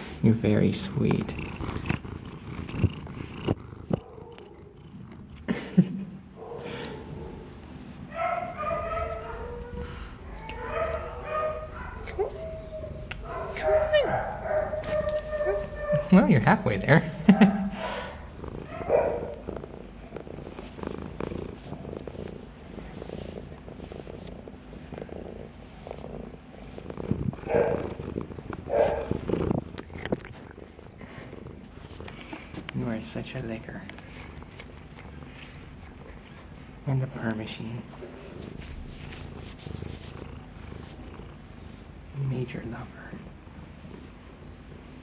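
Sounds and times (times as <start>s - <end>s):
cat purring: 0.0s - 5.9s, 15.7s - 45.0s
cat whining cry: 8.1s - 17.0s.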